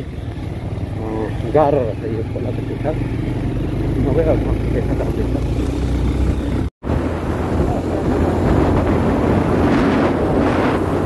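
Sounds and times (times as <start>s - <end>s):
vehicle engine humming: 0.0s - 11.0s
wind buffeting microphone: 5.3s - 11.0s.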